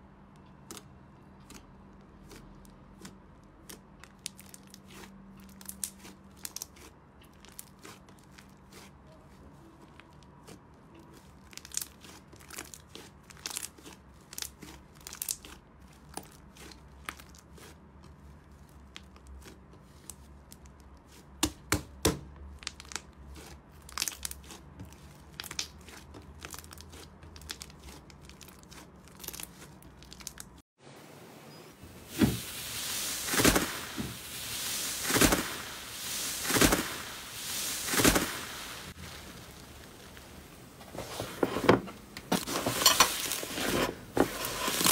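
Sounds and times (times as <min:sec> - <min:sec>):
slime crackling and popping: 0:00.4 - 0:09.0, 0:09.9 - 0:21.4, 0:22.1 - 0:30.6, 0:32.1 - 0:40.5
slime hissing: 0:31.9 - 0:40.6.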